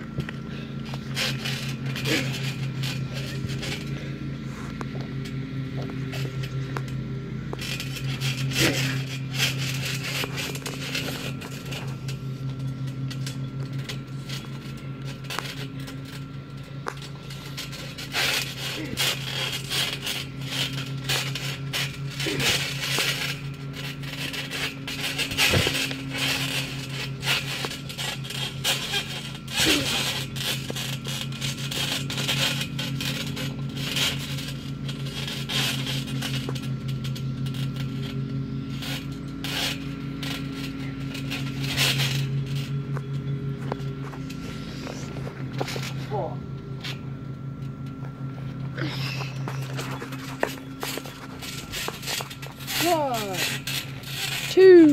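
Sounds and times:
low steady hum: 0.0s - 54.9s
thuds on a trampoline: 0.9s - 3.9s, 7.6s - 12.1s, 17.0s - 38.2s, 48.6s - 54.9s.

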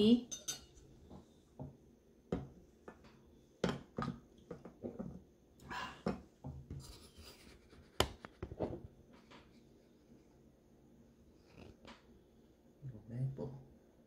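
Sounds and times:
knife and fork on a plate: 0.3s - 0.8s.

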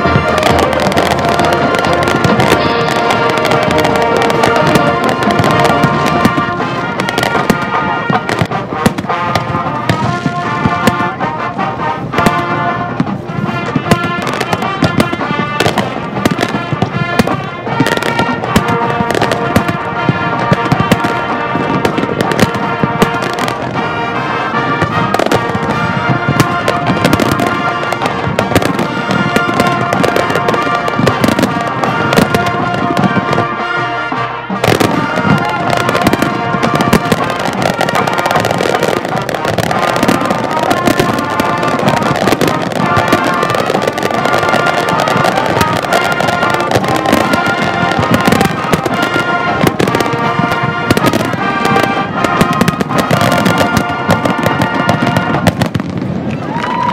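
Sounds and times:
music playing: 0.0s - 56.9s
firework shells bursting: 34.6s - 56.9s.

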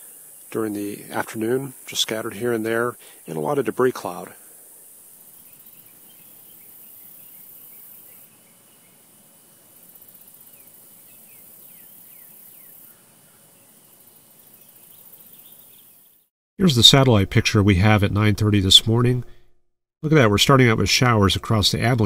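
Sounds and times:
high insect drone: 0.0s - 16.2s.

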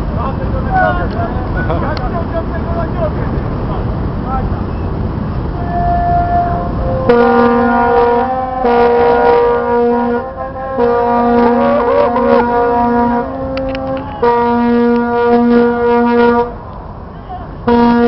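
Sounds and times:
ship's horn blasts: 5.4s - 16.7s, 17.4s - 18.0s.

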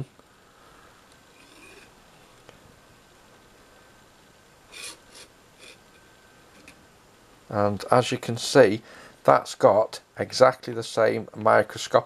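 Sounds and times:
plastic strip scraping: 4.7s - 5.8s.

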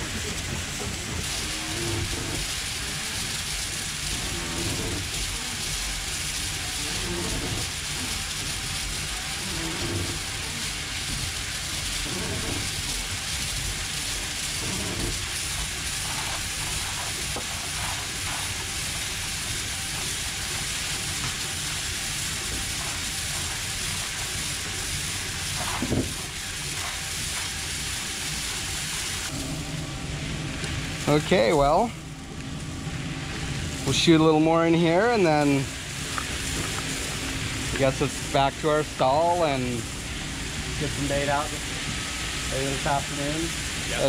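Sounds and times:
ice rushing through hose: 0.0s - 29.5s.

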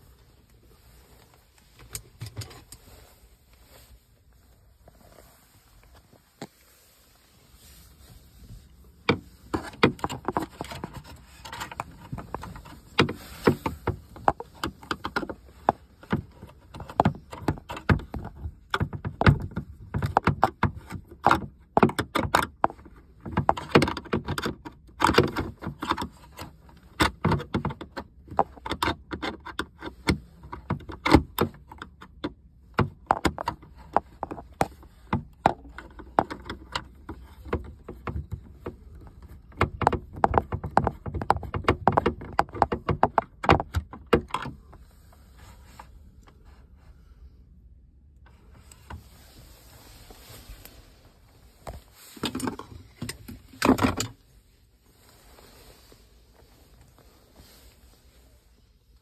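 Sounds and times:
clicks and knocks on plastic trim: 39.4s - 44.5s.

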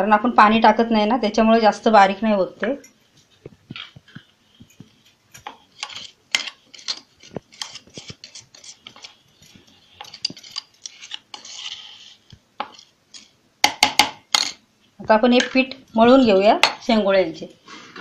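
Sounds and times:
steel spoon scraping metal jar: 5.7s - 13.4s.

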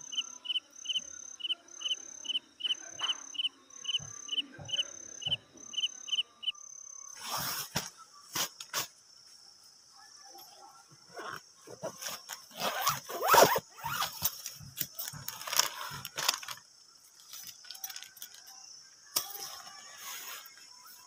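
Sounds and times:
nylon sack rustling and crinkling: 11.3s - 14.1s.

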